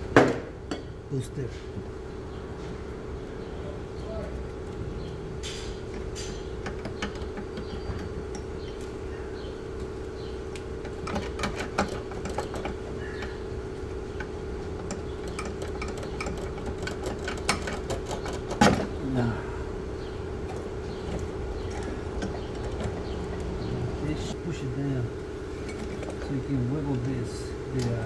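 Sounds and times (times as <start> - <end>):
steady hum: 0.0 - 28.0
hand tools tapping on metal: 5.4 - 8.9, 10.5 - 13.4, 14.1 - 19.0, 20.4 - 24.4.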